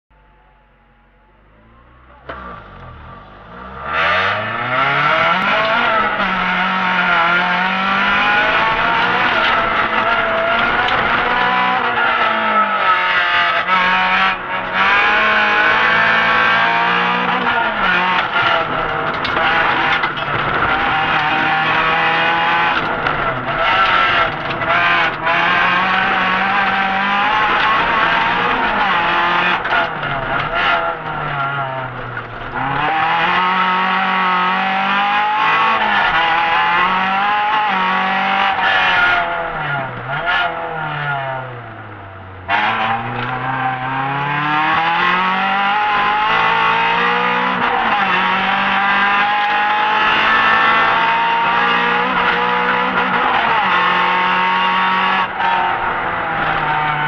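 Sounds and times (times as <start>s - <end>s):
rally car engine revving: 0.1s - 57.0s.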